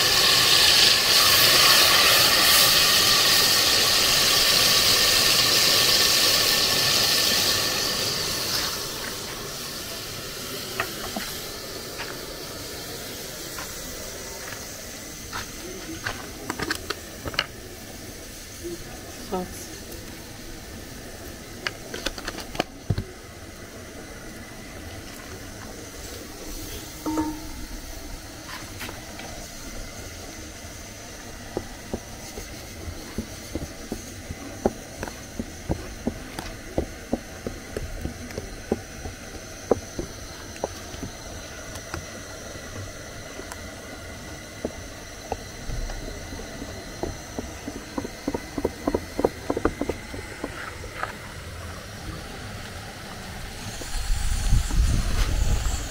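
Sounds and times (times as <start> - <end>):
steady hiss: 0.0 - 55.9.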